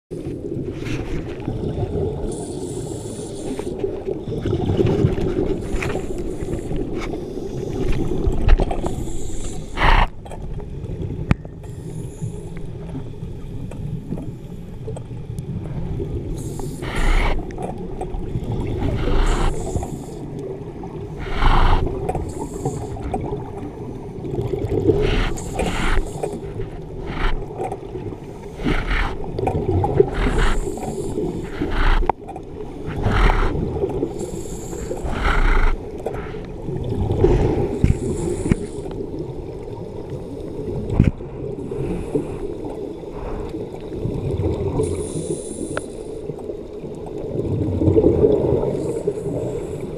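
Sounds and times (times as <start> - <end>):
underwater exhaled bubbles: 0.1 - 49.9
steady low rumble: 24.8 - 39.0.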